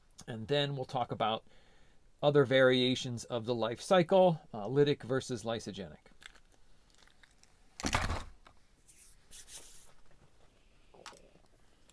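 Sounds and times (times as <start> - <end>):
soft hissing rustle: 8.8 - 11.9.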